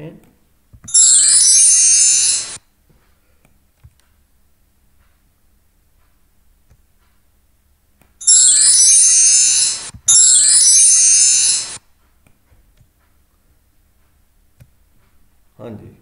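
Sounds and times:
electronic chime jingle: 0:00.9 - 0:02.6, 0:08.2 - 0:11.8.

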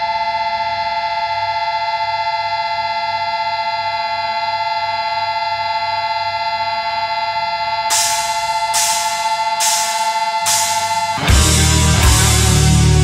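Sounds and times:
guitar feedback drone: 0:05.3 - 0:13.0.

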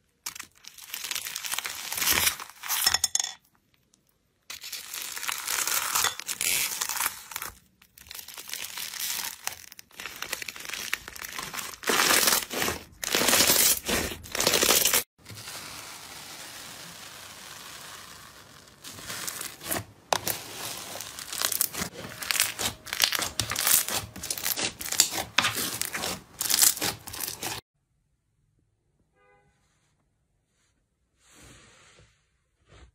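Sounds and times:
crunchy slime crackling: 0:00.2 - 0:02.6, 0:04.5 - 0:27.6.

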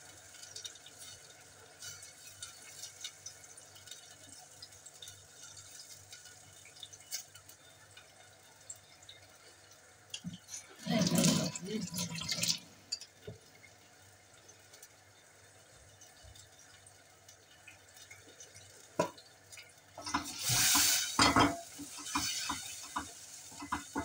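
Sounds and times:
onions sizzling: 0:00.0 - 0:24.0
wooden spoon scraping a pot: 0:20.0 - 0:24.0.

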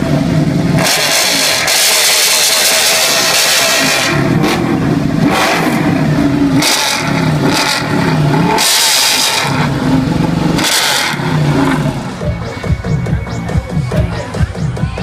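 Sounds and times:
motorcycle engine revving: 0:00.0 - 0:13.9.

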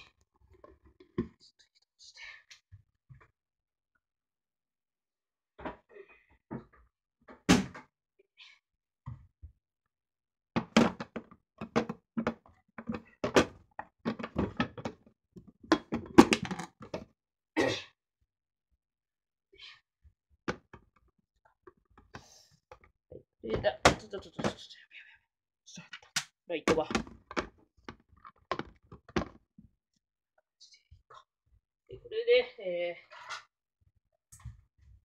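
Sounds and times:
kitchen objects knocking and clattering: 0:10.6 - 0:15.0, 0:15.6 - 0:17.1.

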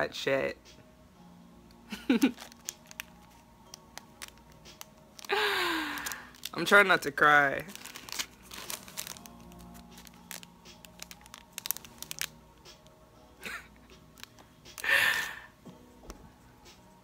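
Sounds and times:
faint music: 0:00.0 - 0:17.0
plastic packaging crinkling: 0:02.0 - 0:12.9, 0:13.5 - 0:15.4.

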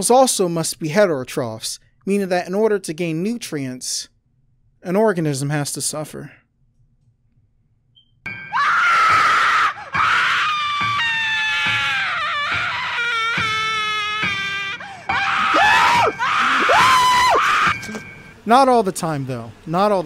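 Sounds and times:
high-pitched screams: 0:08.5 - 0:17.9.

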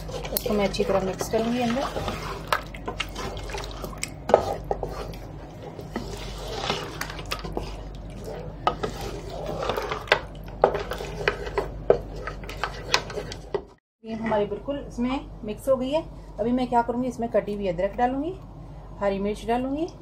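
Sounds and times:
spoon scraping steel pot: 0:00.0 - 0:14.4.

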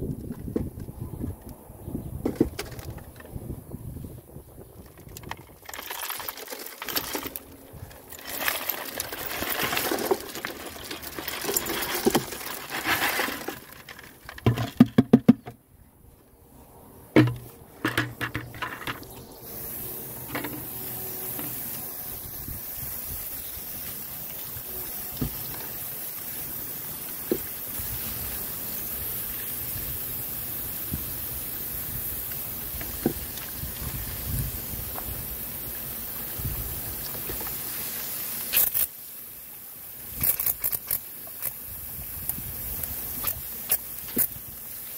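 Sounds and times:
garden hose spraying water: 0:04.2 - 0:14.7, 0:17.2 - 0:44.9
stones clattering on wire mesh: 0:04.9 - 0:15.4.

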